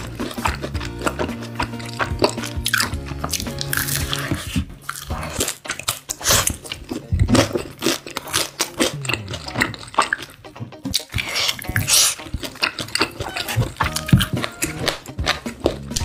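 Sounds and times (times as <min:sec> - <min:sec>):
fried chicken crunching: 0:00.0 - 0:16.0
music: 0:00.0 - 0:16.0.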